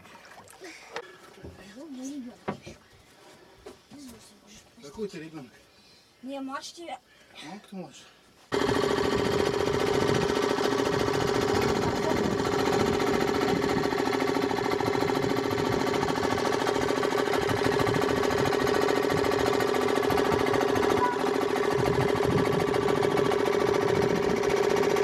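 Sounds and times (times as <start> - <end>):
small engine running: 8.5 - 25.0.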